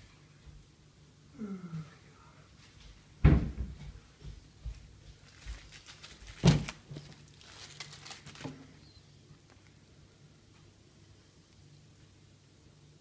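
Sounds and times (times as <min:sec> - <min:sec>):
faint crinkling rustle: 0:04.3 - 0:09.8.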